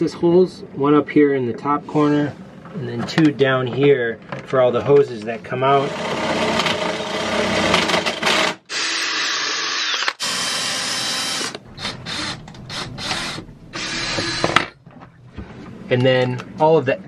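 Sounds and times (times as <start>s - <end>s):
power drill boring through plastic: 5.8s - 14.6s.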